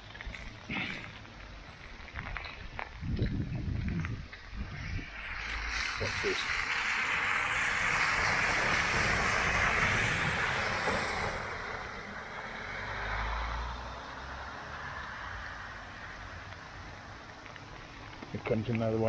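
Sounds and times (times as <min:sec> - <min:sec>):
heavy rain falling: 0:04.7 - 0:13.6
car tyres splashing through water: 0:04.8 - 0:18.2.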